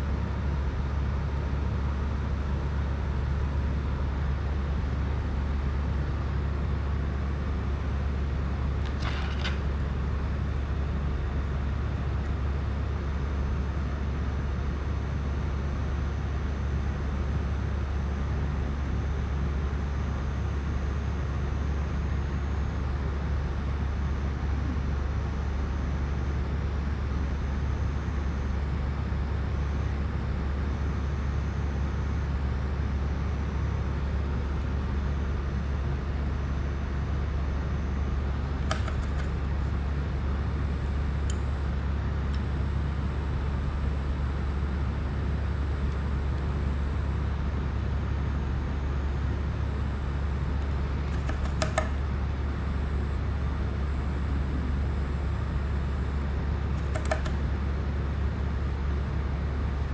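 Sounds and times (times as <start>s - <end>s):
low hum with hiss: 0.0s - 59.9s
light clicks: 56.8s - 57.4s.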